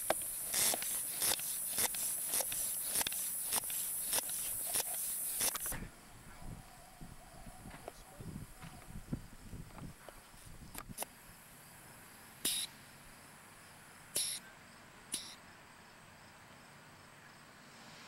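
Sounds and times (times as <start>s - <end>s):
air pump hissing: 0.0s - 5.8s, 12.4s - 12.7s, 14.2s - 14.4s, 15.1s - 15.4s.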